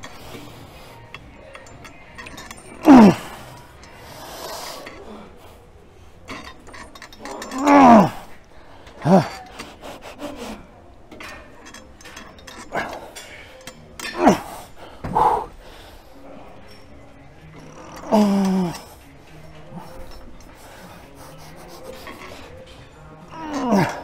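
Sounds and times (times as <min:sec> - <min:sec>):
man grunting with effort: 0:02.8 - 0:03.4, 0:07.4 - 0:08.3, 0:09.0 - 0:09.4, 0:23.3 - 0:24.0.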